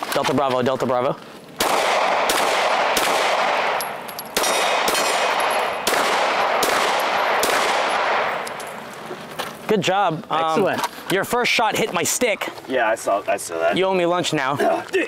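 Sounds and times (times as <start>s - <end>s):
pistol shots echoing: 1.6s - 8.9s.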